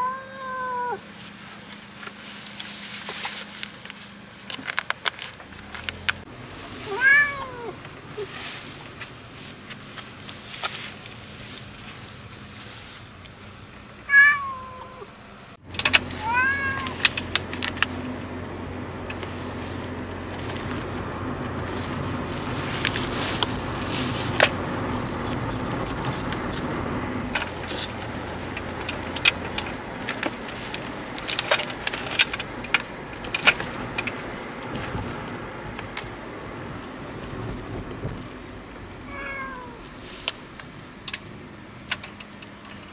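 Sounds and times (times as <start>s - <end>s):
cat meowing: 0.0s - 1.0s, 6.8s - 8.3s, 14.1s - 15.1s, 16.2s - 17.0s, 39.0s - 39.8s
low car hum: 0.0s - 42.9s.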